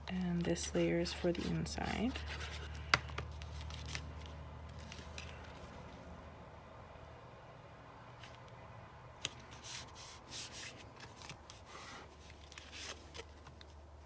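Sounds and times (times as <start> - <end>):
cardstock rustling and rubbing: 0.1 - 5.9, 9.3 - 13.8.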